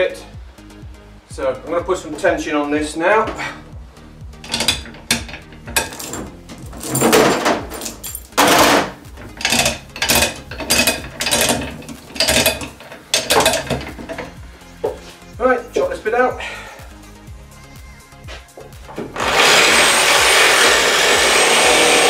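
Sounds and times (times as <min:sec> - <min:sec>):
hoist chain clinking and rattling: 0:04.4 - 0:14.4.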